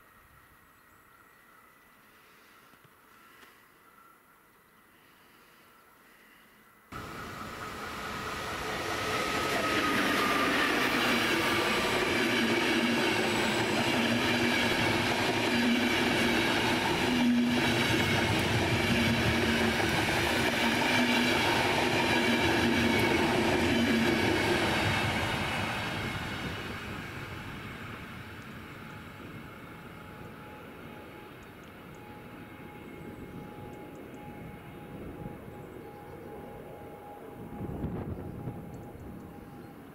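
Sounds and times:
train falling whine: 6.9 - 39.9
train wheels rolling on rails: 7.0 - 35.7.

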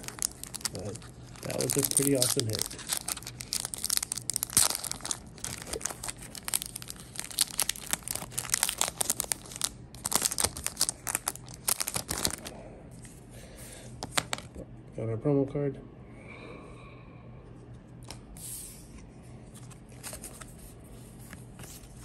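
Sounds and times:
foil wrapper crinkling and tearing: 0.0 - 12.6, 14.0 - 14.6.

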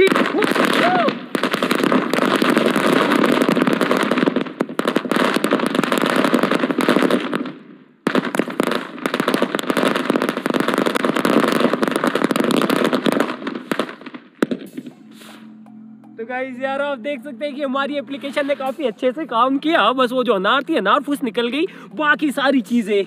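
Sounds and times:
firecrackers going off: 0.0 - 15.7.

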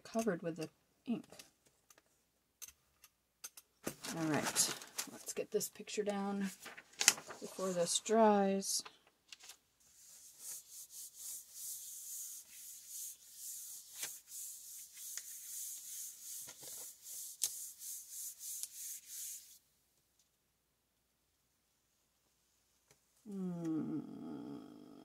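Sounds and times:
hands rubbing paper: 6.5 - 8.1, 9.9 - 19.6.

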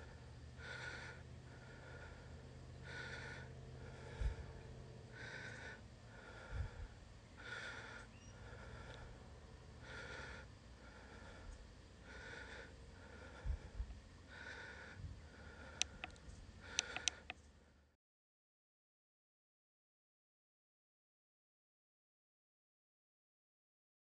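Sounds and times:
person breathing heavily: 0.0 - 17.9.

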